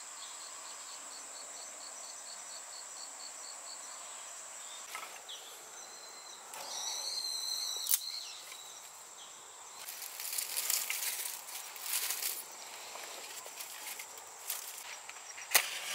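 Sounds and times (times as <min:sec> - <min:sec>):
high insect drone: 0:00.0 - 0:15.9
bird high call: 0:05.4 - 0:08.8
dry twigs rustling and crackling: 0:09.8 - 0:15.6.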